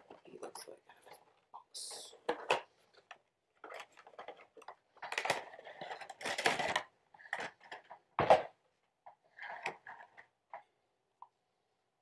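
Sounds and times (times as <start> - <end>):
packaging rustling and scraping: 3.6 - 8.1, 9.1 - 10.4.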